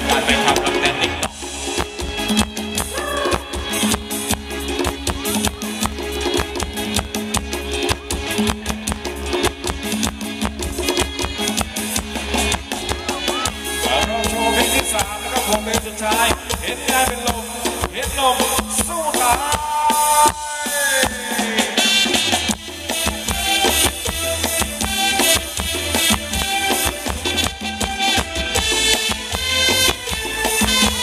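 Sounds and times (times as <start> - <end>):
bass line: 0.0 - 31.0
drum kit beat: 0.0 - 31.0
wavering lead melody: 1.1 - 15.4
saxophone: 2.2 - 7.3, 10.2 - 14.5
trumpet: 2.8 - 4.7, 10.2 - 17.4, 19.1 - 31.0.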